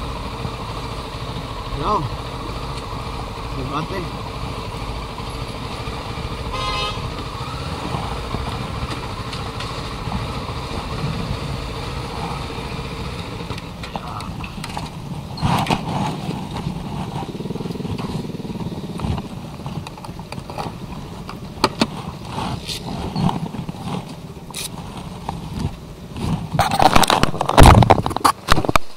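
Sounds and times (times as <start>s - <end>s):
motorcycle engine running: 0.0s - 28.9s
vehicle horn toot: 6.4s - 7.2s
wind rush on microphone: 21.8s - 28.9s.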